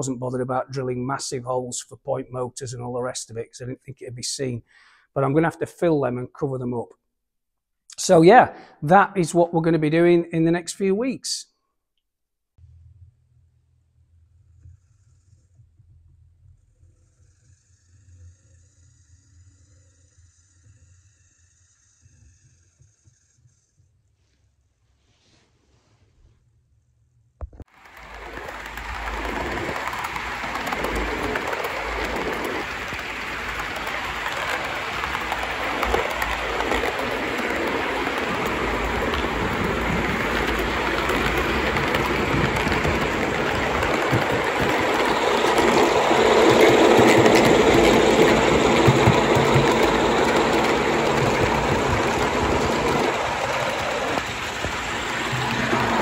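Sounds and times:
model train running on track: 0.0s - 4.5s, 17.1s - 23.3s, 27.7s - 56.0s.

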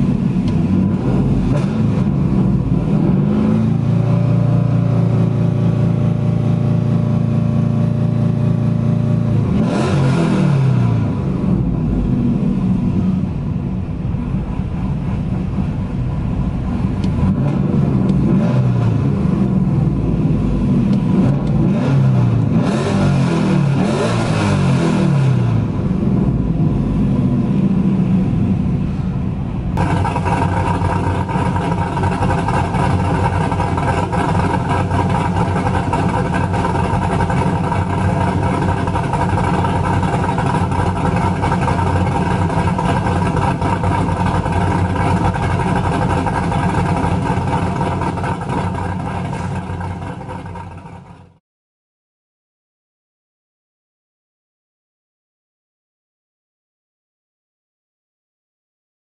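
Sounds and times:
car engine idling: 0.0s - 9.6s, 11.0s - 18.4s, 19.0s - 22.6s, 25.5s - 51.4s.

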